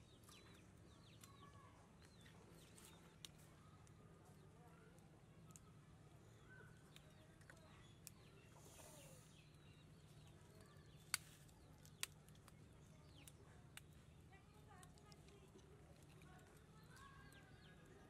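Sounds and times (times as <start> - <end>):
faint bird chirps: 0.0 - 14.1.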